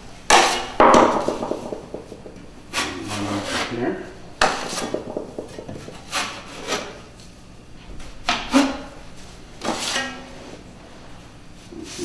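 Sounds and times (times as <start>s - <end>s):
drywall knife scraping compound: 2.7s - 3.8s, 5.9s - 7.1s, 9.6s - 10.5s.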